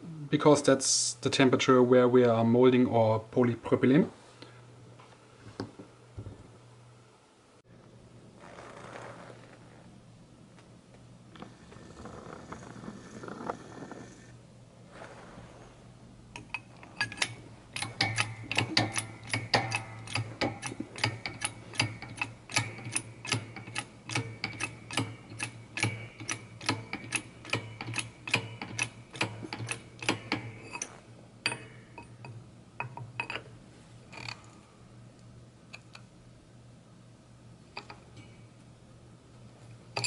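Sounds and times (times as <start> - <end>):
steady low hum: 0.0 - 40.0
hand pump clicking: 16.4 - 30.9.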